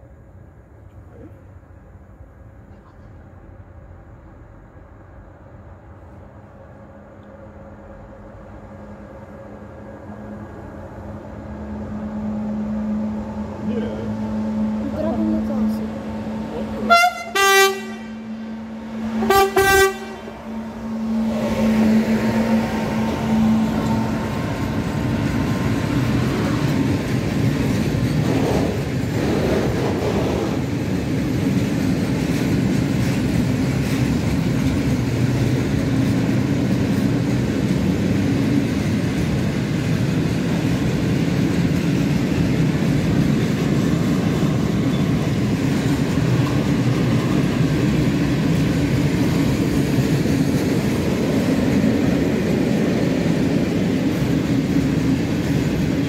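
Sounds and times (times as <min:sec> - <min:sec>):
train wheels rumbling on rail: 0:00.0 - 0:56.0
locomotive horn blasts: 0:16.8 - 0:20.9.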